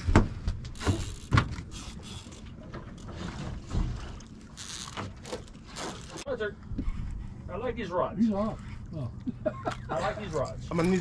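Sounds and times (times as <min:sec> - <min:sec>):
thumps and knocks of fishing rod: 0:00.0 - 0:01.8
water sounds: 0:00.7 - 0:07.5.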